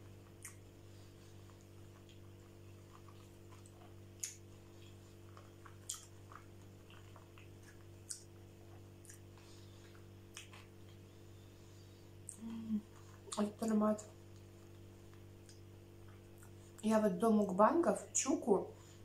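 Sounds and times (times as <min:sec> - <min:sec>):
person chewing wetly: 0:00.0 - 0:11.2, 0:14.2 - 0:16.8.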